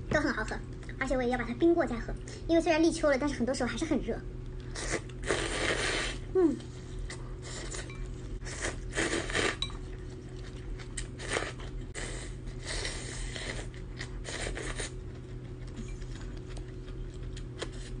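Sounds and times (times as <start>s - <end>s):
noodles being slurped: 4.7s - 6.3s, 7.0s - 9.7s, 10.3s - 15.0s
chewing: 13.3s - 18.0s.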